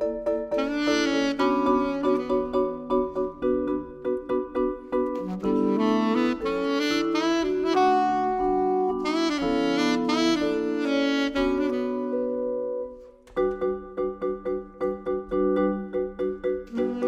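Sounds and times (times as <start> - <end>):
vibraphone chords: 0.0 - 12.8, 13.4 - 17.0
saxophone melody: 0.3 - 3.9, 5.0 - 13.0, 16.7 - 17.0.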